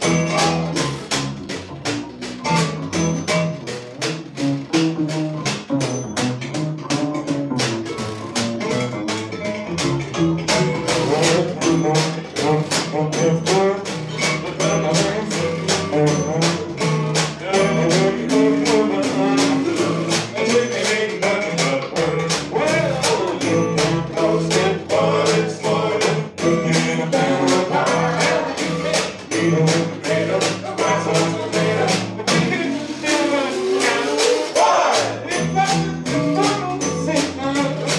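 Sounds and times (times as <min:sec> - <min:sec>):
guitar: 0:00.0 - 0:37.9
upright double bass: 0:00.0 - 0:37.9
crisp percussion strokes: 0:09.8 - 0:37.9.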